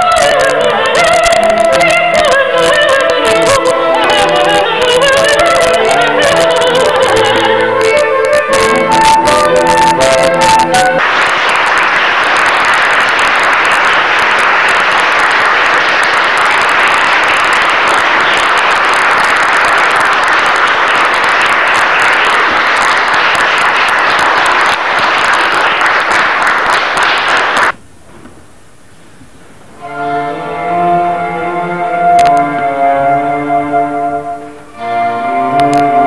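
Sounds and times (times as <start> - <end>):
audience applauding: 0.0 - 27.8, 35.4 - 36.0.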